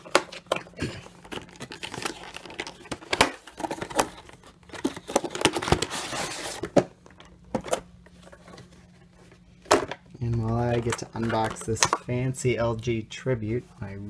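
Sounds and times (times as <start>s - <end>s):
cardboard crinkling: 0.0s - 7.2s.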